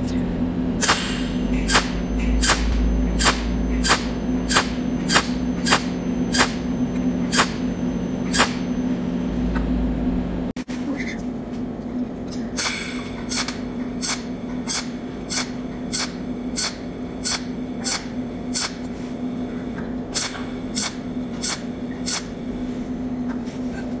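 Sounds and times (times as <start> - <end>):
steady low hum: 0.0 - 24.0
welding machine snaps: 0.8 - 6.7, 7.3 - 7.6, 8.3 - 8.7, 12.6 - 18.8, 20.2 - 22.3.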